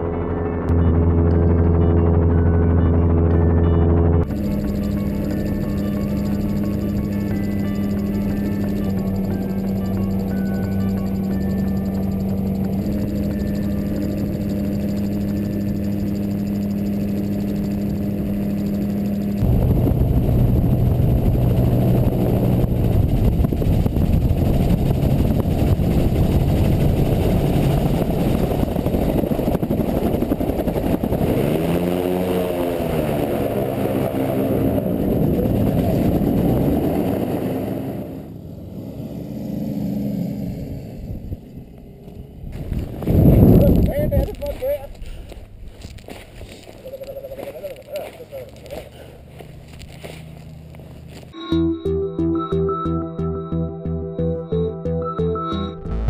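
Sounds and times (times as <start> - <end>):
aircraft engine and propeller: 0.0 - 51.4
wind rushing over microphone: 19.4 - 38.2, 40.8 - 46.0.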